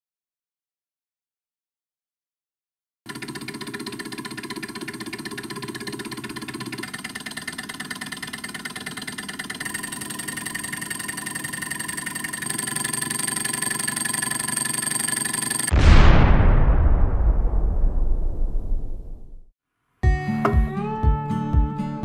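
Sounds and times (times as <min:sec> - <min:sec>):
small engine mechanical clatter: 0:03.1 - 0:15.7.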